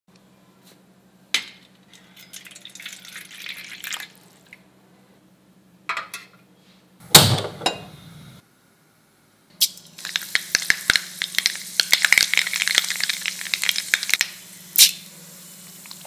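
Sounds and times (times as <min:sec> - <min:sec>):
low steady hum: 0:00.1 - 0:16.0
water pouring into metal bowl: 0:02.0 - 0:04.2.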